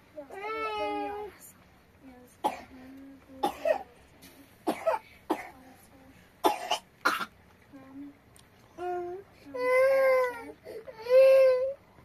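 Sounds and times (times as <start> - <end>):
person coughing: 3.4 - 3.8, 4.7 - 5.6, 6.4 - 7.3.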